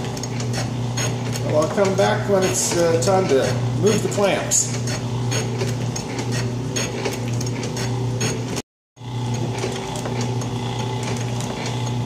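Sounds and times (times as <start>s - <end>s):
shaper motor hum: 0.0s - 12.0s.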